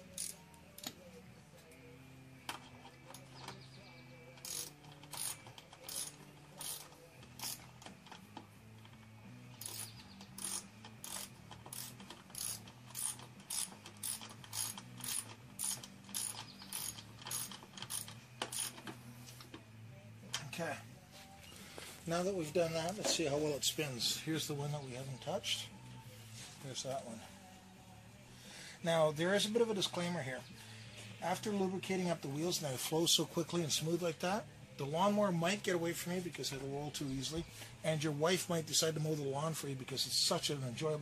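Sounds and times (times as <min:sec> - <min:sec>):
ratchet wrench clicking: 0:00.1 - 0:01.0, 0:04.4 - 0:19.0.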